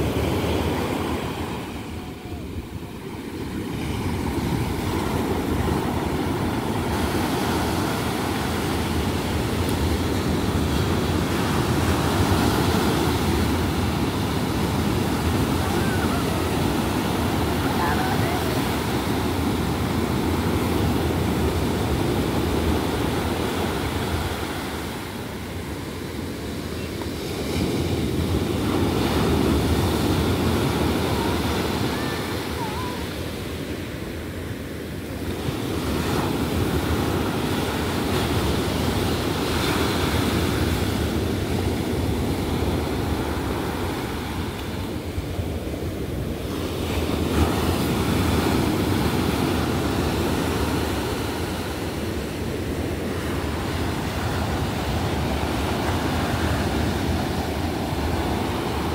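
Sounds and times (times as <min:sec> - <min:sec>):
ocean surf breaking on beach: 0:00.0 - 0:58.9.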